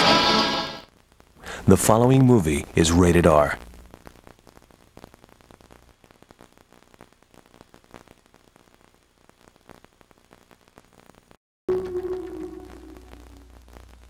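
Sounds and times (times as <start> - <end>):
tape crackle and hiss: 0.8 - 14.0
low steady hum: 11.7 - 14.0.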